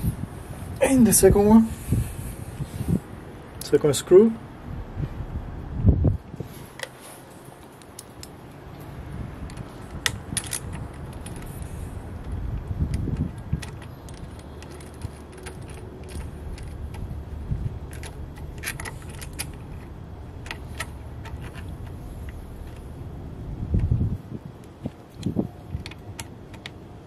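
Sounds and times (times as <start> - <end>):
metal hardware clicks and jingles: 6.8 - 22.9.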